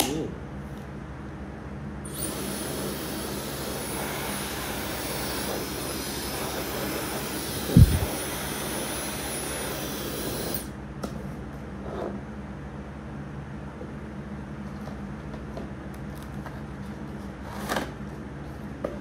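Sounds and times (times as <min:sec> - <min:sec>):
hair dryer running: 0:02.1 - 0:10.7.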